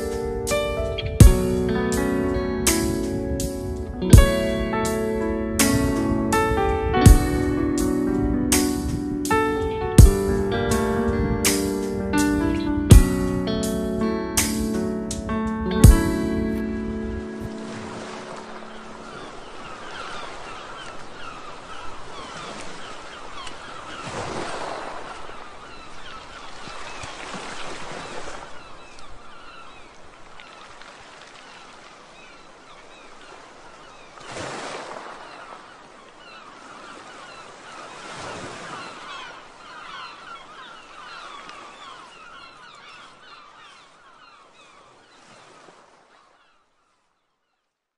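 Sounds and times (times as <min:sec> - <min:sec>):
small waves washing onto sand: 0:15.9 - 0:46.7
birds chattering and calling: 0:17.9 - 0:24.5, 0:35.0 - 0:46.6.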